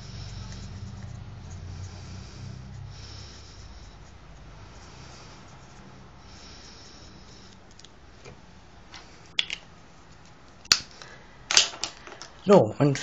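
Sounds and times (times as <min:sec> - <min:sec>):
marker rubbing across paper: 0:00.0 - 0:07.9.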